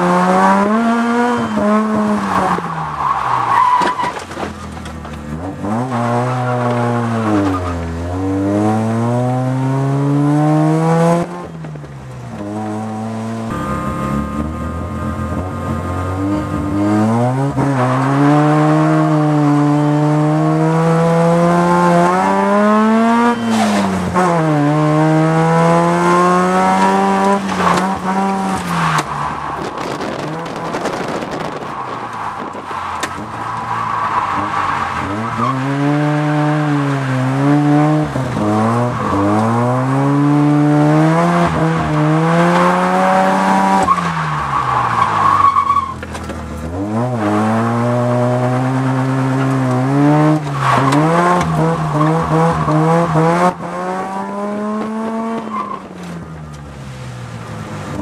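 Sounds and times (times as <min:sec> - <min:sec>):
rotary engine revving: 0:12.4 - 0:56.2.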